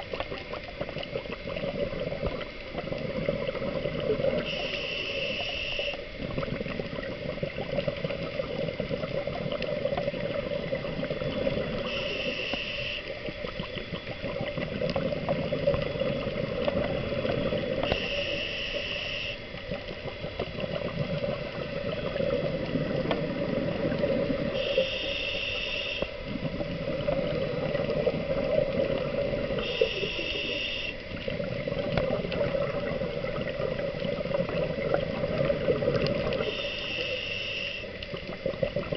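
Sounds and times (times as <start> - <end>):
bubbling exhales underwater: 0.0 - 25.2, 26.0 - 37.1, 38.0 - 38.9
regulator hiss on inhale: 2.7 - 6.7, 8.0 - 20.1, 21.0 - 31.4, 35.9 - 38.4.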